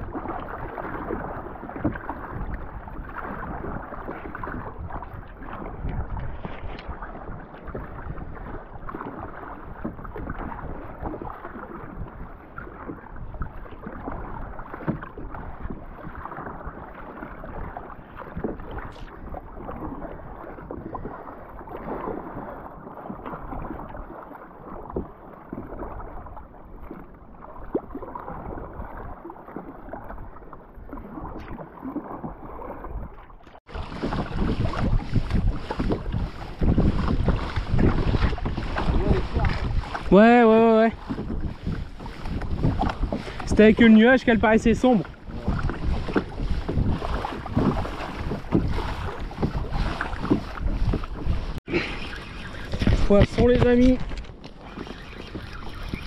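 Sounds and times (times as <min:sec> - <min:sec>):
water splashing against kayak hull: 0:00.0 - 0:56.0.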